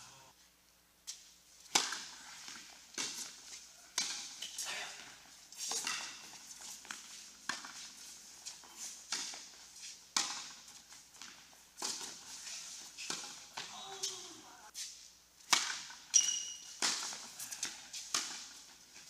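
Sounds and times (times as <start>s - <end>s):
tennis ball struck by rackets: 1.7s - 3.4s, 4.0s - 4.6s, 9.1s - 12.2s, 15.5s - 18.6s.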